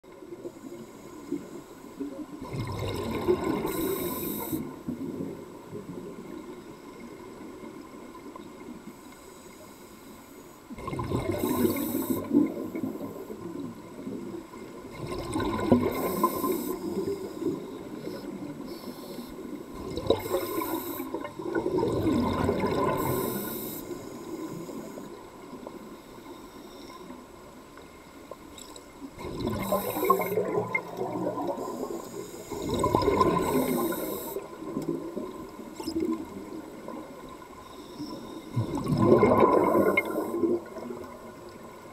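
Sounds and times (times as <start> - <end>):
gurgling exhaust bubbles: 14.9 - 16.5, 19.8 - 23.3, 29.2 - 34.0, 38.6 - 41.4
regulator breath hissing: 33.5 - 34.5.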